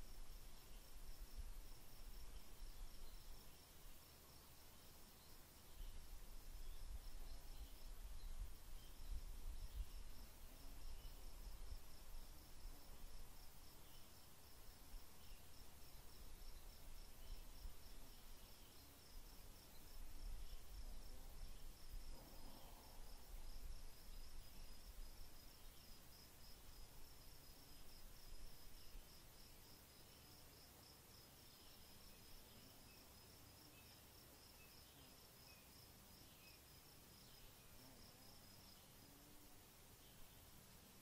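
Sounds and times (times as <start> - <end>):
crickets chirping: 0.0 - 41.0.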